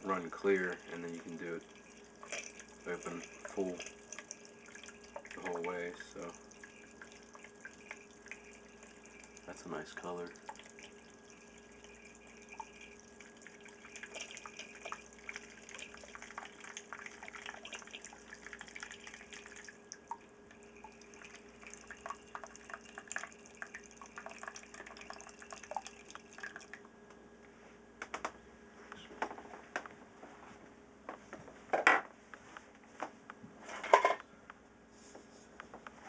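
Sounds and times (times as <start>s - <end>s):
liquid trickling into a plastic pitcher: 0.1s - 26.9s.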